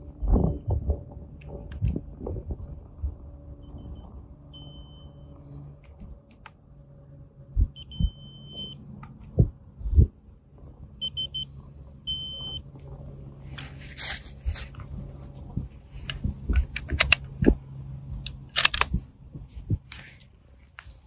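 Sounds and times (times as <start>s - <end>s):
electronic beeps: 3.6s - 5.4s, 7.8s - 8.8s, 11.0s - 11.5s, 12.1s - 12.6s.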